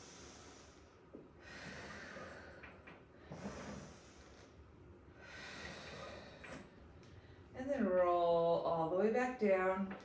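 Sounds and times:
woman breathing in and out: 0:00.0 - 0:07.6.

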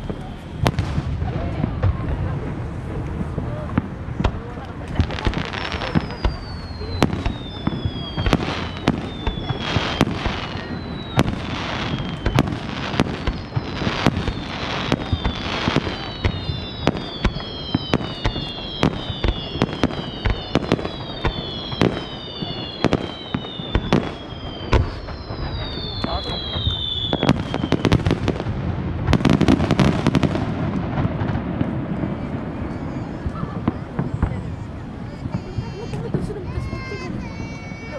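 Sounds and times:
fireworks whistles falling in pitch: 0:00.0 - 0:01.1, 0:04.9 - 0:28.5
fireworks bangs: 0:00.0 - 0:37.9.

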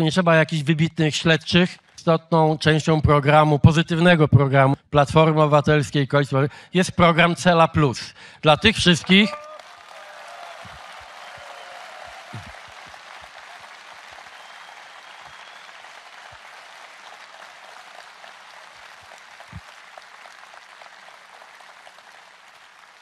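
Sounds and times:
audience applauding: 0:09.0 - 0:23.0.

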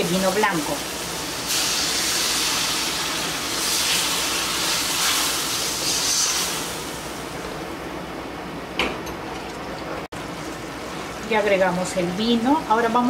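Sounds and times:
wine sizzling in hot pan: 0:00.0 - 0:07.5, 0:10.2 - 0:13.0.

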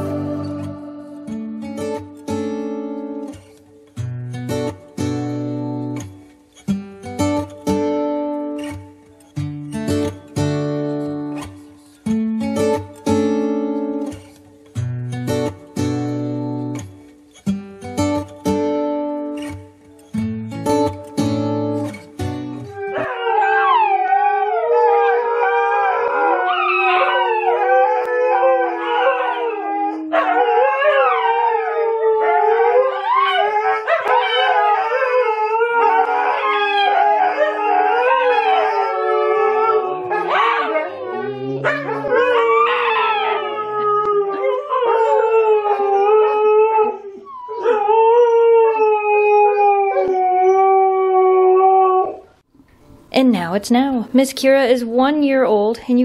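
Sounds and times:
dogs howling together: 0:00.0 - 0:01.4, 0:22.8 - 0:52.3.

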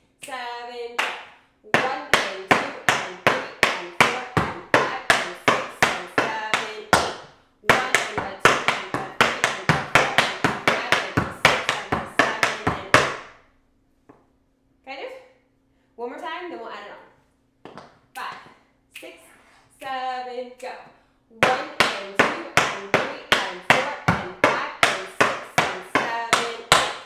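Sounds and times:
tap shoes clicking on wood: 0:01.8 - 0:13.2.

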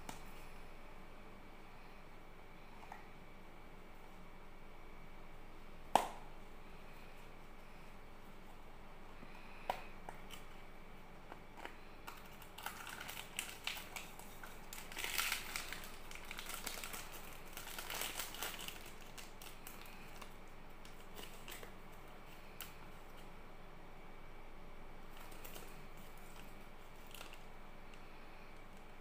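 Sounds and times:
plastic wrapper crinkling: 0:11.6 - 0:22.0, 0:25.1 - 0:28.0.

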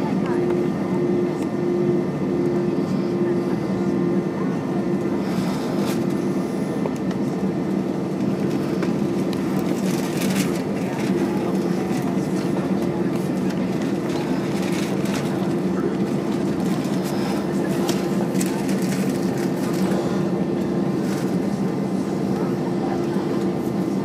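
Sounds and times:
jet engines humming: 0:00.0 - 0:24.0.

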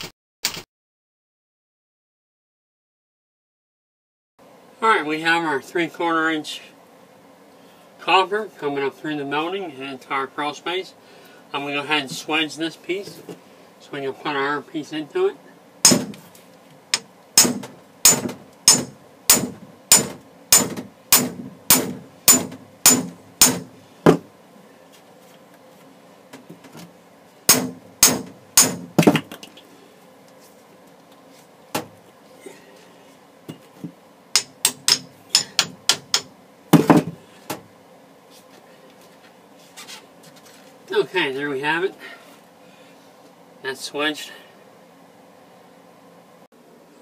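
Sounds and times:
hammer striking copper pipe: 0:15.8 - 0:16.2, 0:17.4 - 0:24.2, 0:27.5 - 0:29.2, 0:34.4 - 0:37.1.

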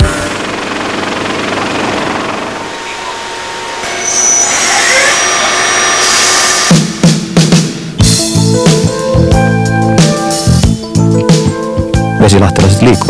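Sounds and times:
lathe hiss and high whine: 0:02.4 - 0:08.0.

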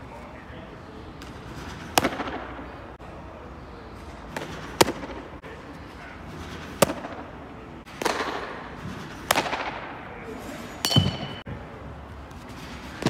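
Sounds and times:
baseballs smacking into mitt: 0:01.2 - 0:02.6, 0:04.3 - 0:05.4, 0:06.6 - 0:07.3, 0:07.9 - 0:10.0.

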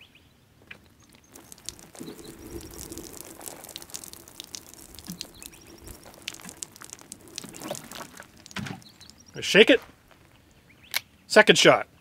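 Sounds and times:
water drops splashing: 0:00.7 - 0:10.0.

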